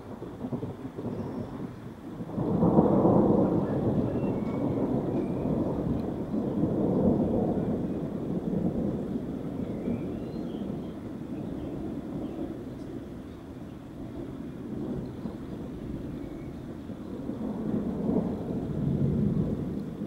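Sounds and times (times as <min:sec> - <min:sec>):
thunder rumbling: 0:00.0 - 0:20.0.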